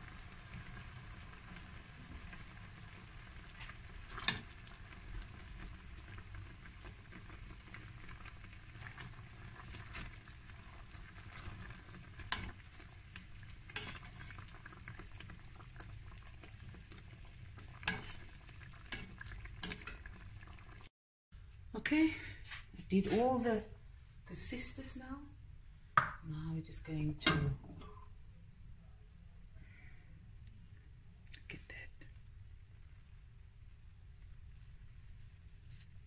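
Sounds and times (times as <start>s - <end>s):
dough sizzling in boiling syrup: 0.0s - 20.9s, 32.2s - 36.0s.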